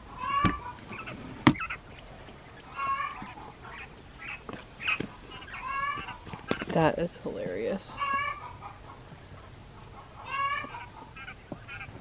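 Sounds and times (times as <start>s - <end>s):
quail chirping calls: 0.0s - 6.7s, 7.9s - 12.0s.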